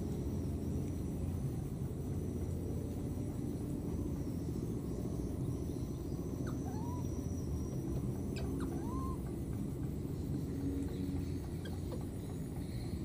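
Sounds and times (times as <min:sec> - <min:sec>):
steady low rumble: 0:00.0 - 0:13.0
baby monkey cooing: 0:06.4 - 0:07.2, 0:08.3 - 0:09.4.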